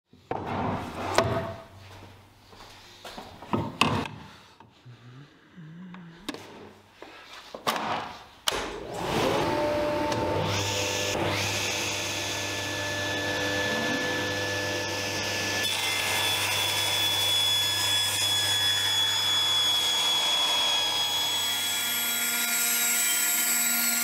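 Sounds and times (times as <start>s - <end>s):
table saw motor humming: 8.9s - 24.0s.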